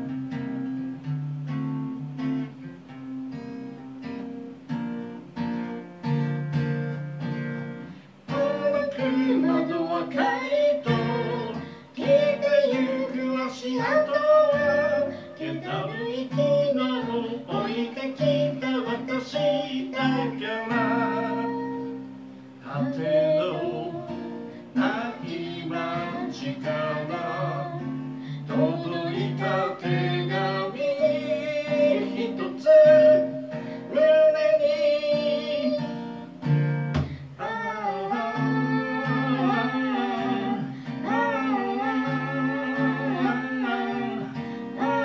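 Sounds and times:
acoustic guitar strummed and picked: 0:00.0 - 0:45.0
man singing: 0:08.3 - 0:22.0, 0:22.6 - 0:36.2, 0:37.4 - 0:45.0.

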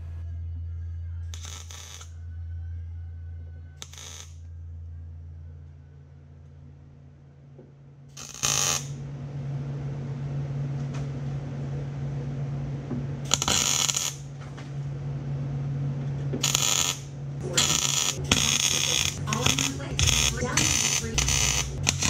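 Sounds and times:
steady low hum: 0:00.0 - 0:22.0
arc welder crackling: 0:01.3 - 0:02.2, 0:03.8 - 0:04.4, 0:08.1 - 0:09.1, 0:13.2 - 0:14.9, 0:16.0 - 0:22.0.

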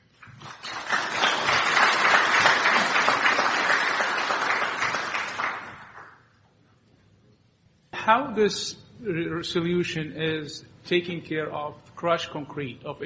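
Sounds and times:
audience applauding: 0:00.2 - 0:06.2.

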